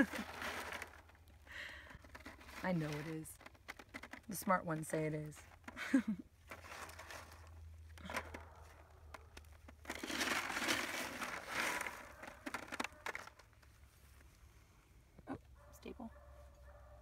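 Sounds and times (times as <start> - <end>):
dirt scraping on plastic screen: 0.0 - 1.3, 2.0 - 5.7, 6.4 - 13.8
small clicks of soil and pebbles: 0.0 - 5.8, 6.4 - 14.5.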